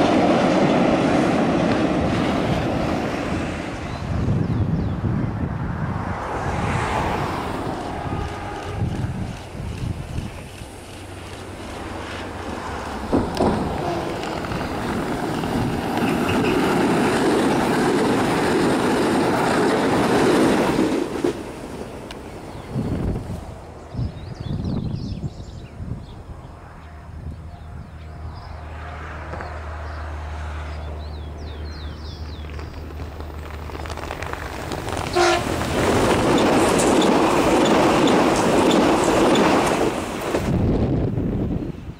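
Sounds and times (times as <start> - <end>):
train wheels on rails passing: 0.0 - 24.2, 27.4 - 41.9
train horn blast: 7.8 - 9.3, 13.7 - 14.4, 26.8 - 29.3, 35.1 - 35.6.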